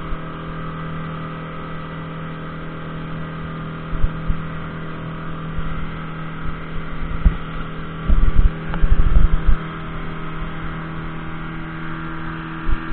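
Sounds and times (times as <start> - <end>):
outboard motor humming: 0.0 - 12.9
low wind buffeting: 5.4 - 11.5.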